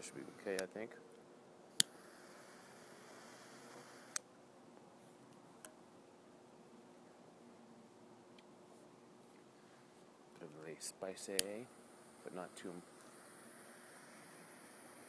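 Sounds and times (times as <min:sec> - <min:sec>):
lighter clicking: 0:01.7 - 0:04.2
torch lighter flame hissing: 0:01.7 - 0:04.2, 0:11.0 - 0:15.0.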